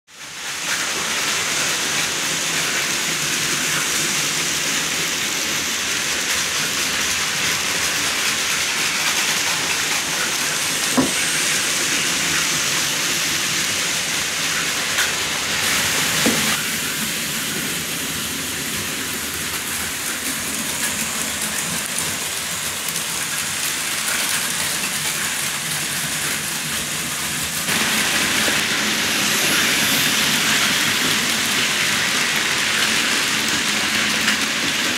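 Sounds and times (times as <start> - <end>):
toy train motors whirring: 0.2 - 34.9.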